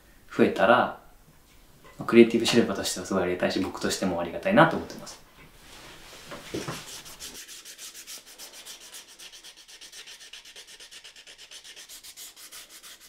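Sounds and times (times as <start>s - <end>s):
sandpaper rubbing strokes: 5.7s - 13.0s.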